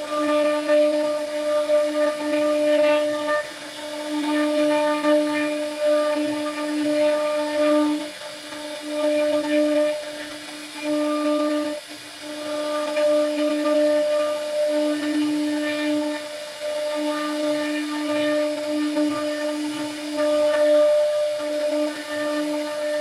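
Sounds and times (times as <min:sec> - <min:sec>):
router spindle whining: 0:00.0 - 0:23.0.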